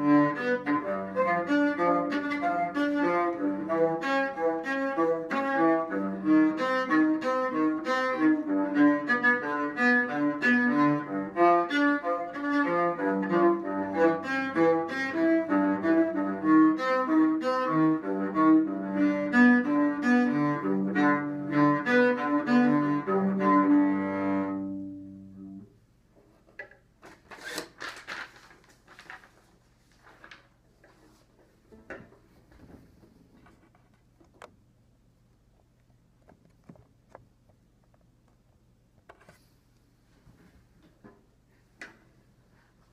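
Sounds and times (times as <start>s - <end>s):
bowed cello: 0.0s - 25.7s
soft knocks and rustles: 29.0s - 34.5s.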